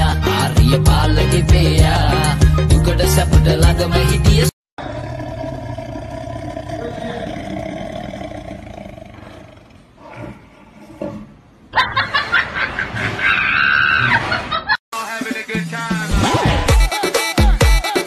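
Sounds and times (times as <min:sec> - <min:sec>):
tiger roaring: 0:04.8 - 0:11.5.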